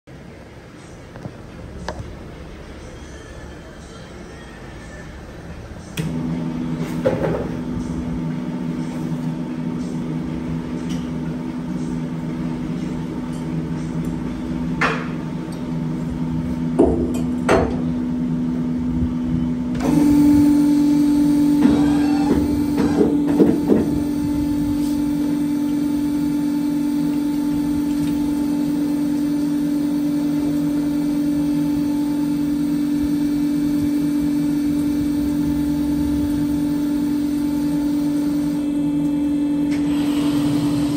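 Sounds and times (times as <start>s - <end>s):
electric motor humming: 19.8s - 40.9s.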